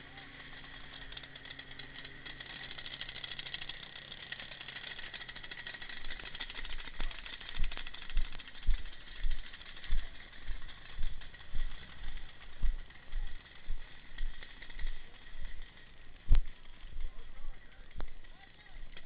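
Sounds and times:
footsteps on dirt trail: 0:07.0 - 0:15.6.

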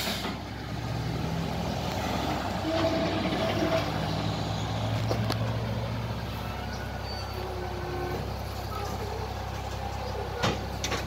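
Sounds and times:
truck engine running slowly: 0:00.0 - 0:11.0.

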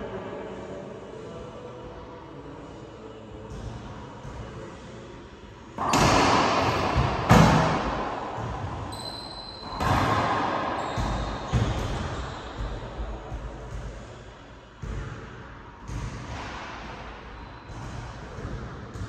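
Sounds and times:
racquetball hits echoing: 0:05.7 - 0:19.0.

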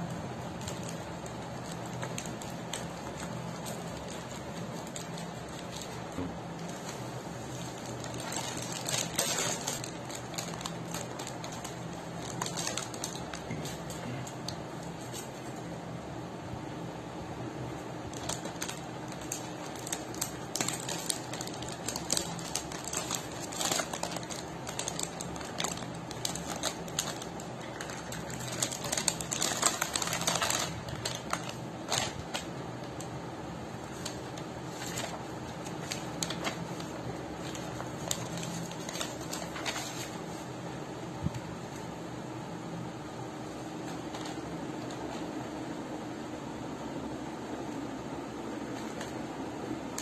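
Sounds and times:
plastic packaging crinkling: 0:00.0 - 0:15.6, 0:18.0 - 0:40.5, 0:43.8 - 0:45.3
steady low hum: 0:00.0 - 0:50.0.

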